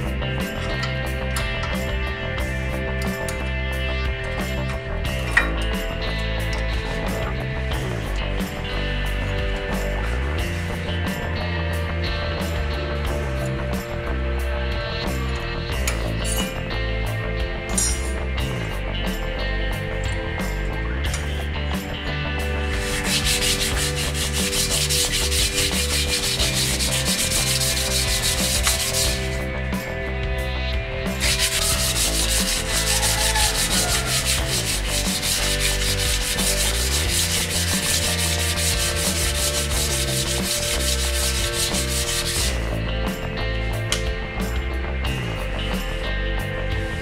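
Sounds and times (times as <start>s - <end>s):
sandpaper scratching metal: 22.6s - 29.4s, 31.2s - 42.7s.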